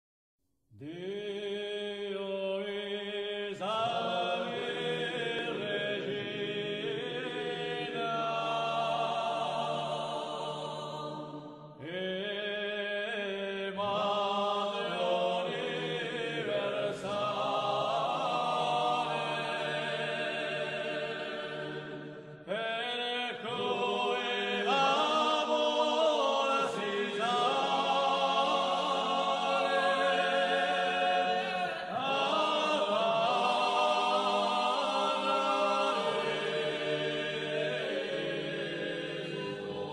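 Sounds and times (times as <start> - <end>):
voices singing a chant: 0.8 - 39.9.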